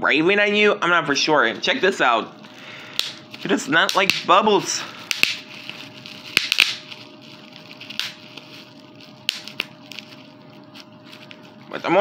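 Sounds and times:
bubble wrap crinkling: 2.4s - 12.0s
bubble wrap popping: 2.9s - 12.0s.

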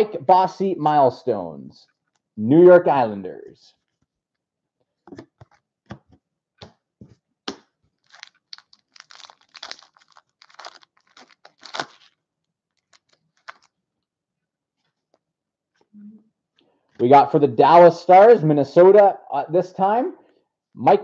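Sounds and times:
cards flipping clicks and scrapes: 5.1s - 13.7s.

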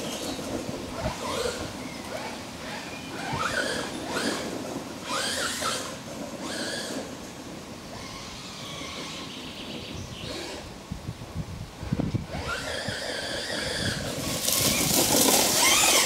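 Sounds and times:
electric motor whining: 12.1s - 16.0s
tyres throwing dirt: 14.1s - 16.0s.

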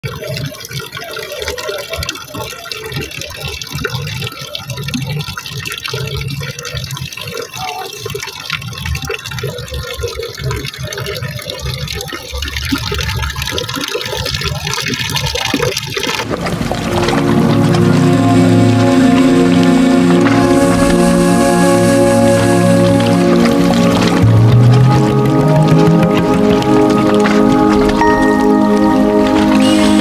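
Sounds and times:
fountain water splashing: 0.0s - 30.0s.

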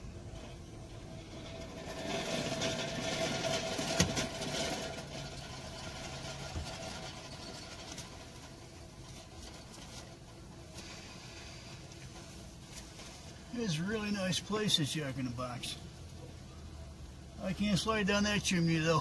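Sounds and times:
car engine and road noise: 0.0s - 19.0s.

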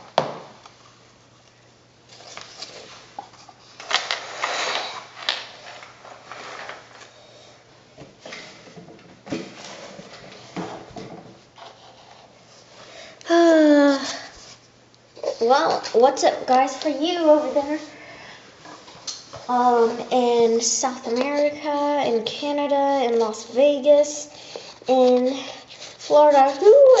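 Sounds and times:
rustling handling noises: 0.7s - 7.3s.

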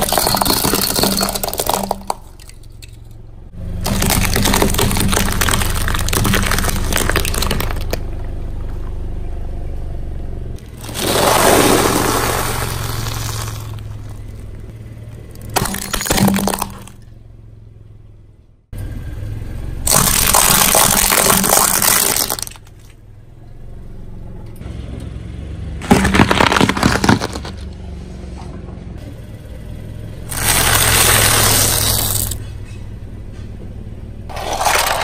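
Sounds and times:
plastic toy breaking: 0.0s - 3.0s, 3.8s - 8.2s, 15.4s - 17.0s, 19.9s - 22.8s, 25.8s - 27.7s, 30.3s - 32.4s, 34.3s - 35.0s
car engine idling: 0.0s - 19.9s, 27.4s - 35.0s
tyre crushing objects: 3.8s - 8.4s, 10.6s - 14.6s, 15.4s - 17.0s, 19.9s - 22.7s, 25.8s - 27.7s, 30.3s - 32.4s, 34.3s - 35.0s.

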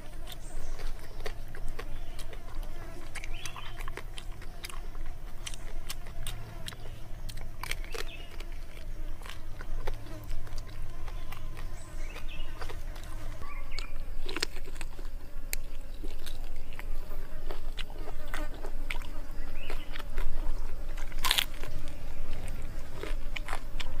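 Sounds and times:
mouth clicks: 0.0s - 17.0s
food crunching: 0.0s - 24.0s
person chewing: 0.0s - 24.0s.

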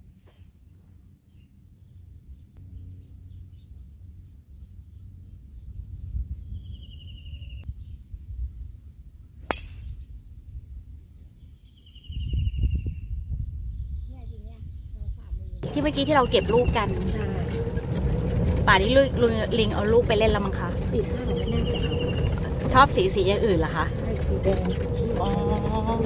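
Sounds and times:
birds chirping trills: 0.4s - 13.0s, 13.8s - 26.0s
wind on microphone: 5.5s - 26.0s
golf club striking ball: 9.4s - 10.0s.

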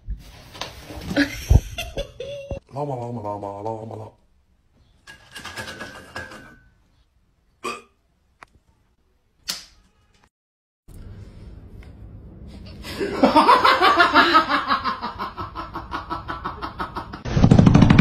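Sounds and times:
person laughing hard: 1.2s - 2.6s, 12.9s - 17.2s.

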